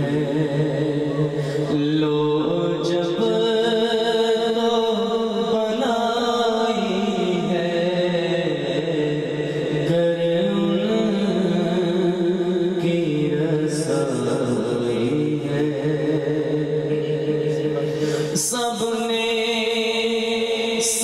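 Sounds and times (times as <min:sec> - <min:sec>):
man chanting: 0:00.0 - 0:21.0.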